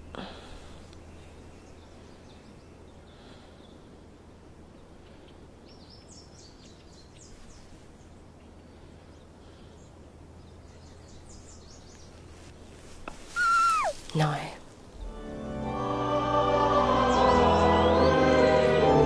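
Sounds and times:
small bird chirping: 13.1 - 14.3.

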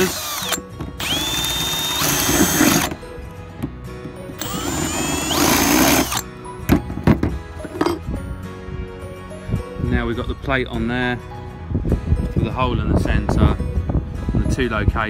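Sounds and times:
power drill boring into metal: 0.0 - 3.0, 4.4 - 6.3.

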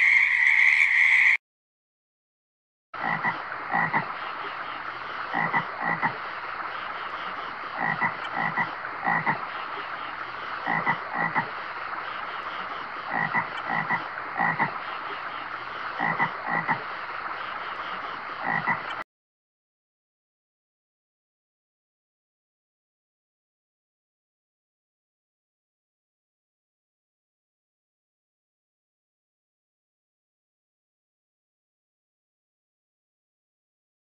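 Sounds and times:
frog croaking: 0.0 - 1.4, 3.0 - 4.1, 5.3 - 6.2, 7.8 - 9.5, 10.6 - 11.5, 13.0 - 15.1, 16.0 - 16.8, 18.4 - 19.0
flowing water rushing: 3.0 - 19.0.

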